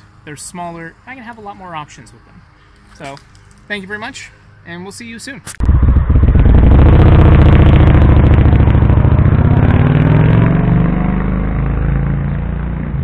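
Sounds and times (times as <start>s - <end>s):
motorcycle pulling away: 5.6s - 13.0s.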